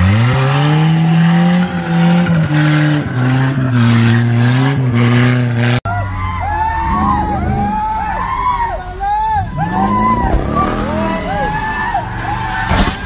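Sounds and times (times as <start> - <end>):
car engine revving hard: 0.0 - 5.8, 9.6 - 12.7
people's voices: 5.9 - 13.0.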